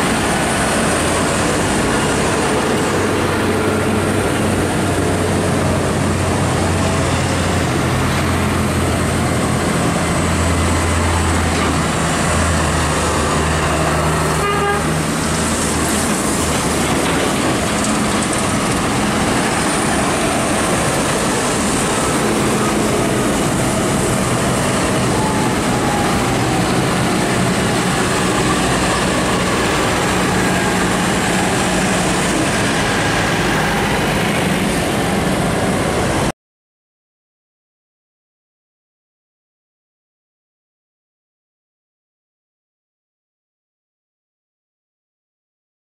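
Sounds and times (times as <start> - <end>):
tractor diesel engines passing: 0.0 - 36.3
tyres on wet road: 0.0 - 36.3.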